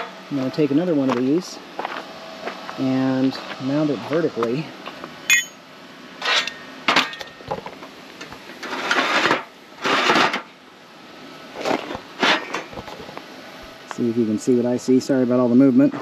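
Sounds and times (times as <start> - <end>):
metallic clink with ring: 5.3 - 5.6.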